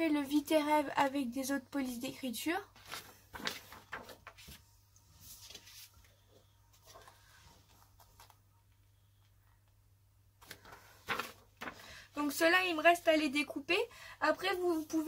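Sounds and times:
low steady hum: 0.0 - 15.0
paper rustling: 2.8 - 8.4, 10.4 - 12.0.

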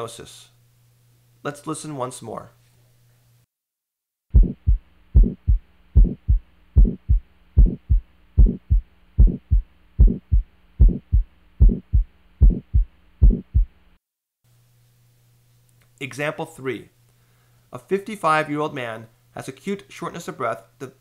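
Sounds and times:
harsh heart murmur: 4.3 - 13.8
heartbeat through stethoscope: 4.3 - 13.8
steady low hum: 4.3 - 14.0.

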